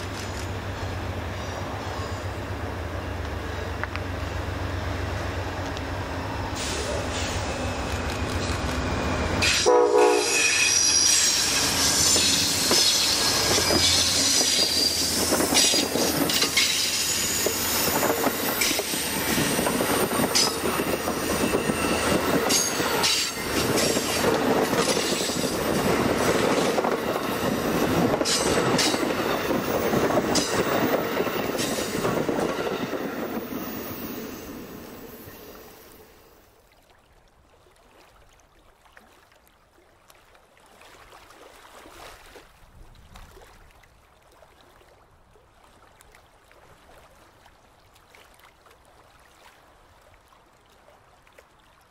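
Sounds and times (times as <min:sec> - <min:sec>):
train cars rushing past: 0:00.0 - 0:36.5
train horn: 0:09.4 - 0:15.0
high wheel squeal: 0:10.2 - 0:24.2
wheels clicking over rail joints: 0:11.5 - 0:33.8.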